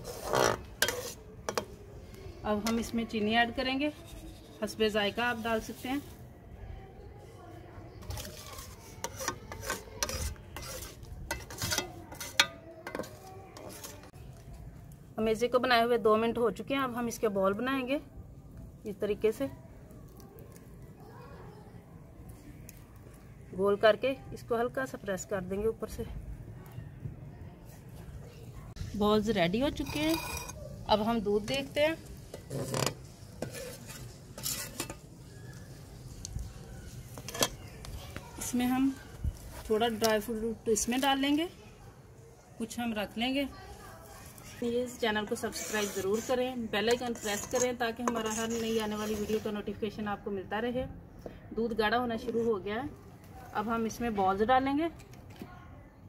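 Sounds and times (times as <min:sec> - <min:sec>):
skimmer scraping steel pan: 0:00.0 - 0:01.7, 0:08.0 - 0:14.1, 0:29.7 - 0:30.6, 0:31.4 - 0:35.2, 0:45.3 - 0:49.6.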